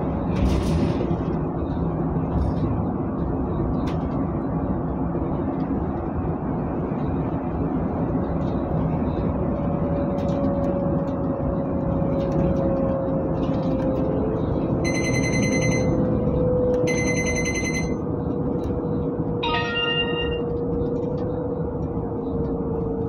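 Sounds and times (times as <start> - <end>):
bus engine and road noise: 0.0 - 23.0
short ringing chime: 14.9 - 16.0, 16.9 - 18.0, 19.4 - 20.5
high electronic beeps: 16.8 - 18.0, 19.4 - 20.5.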